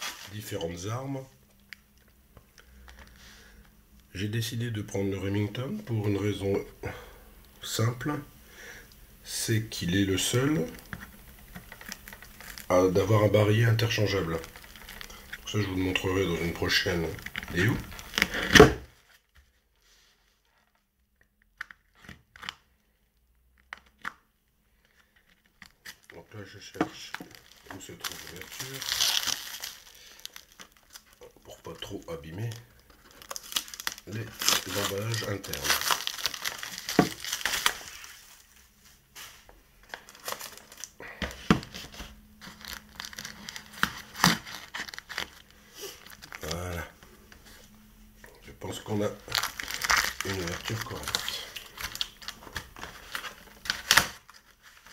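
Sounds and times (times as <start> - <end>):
packing tape and plastic crackling: 0.0 - 0.8, 10.2 - 19.2, 23.5 - 38.6, 39.2 - 47.0, 48.6 - 54.9.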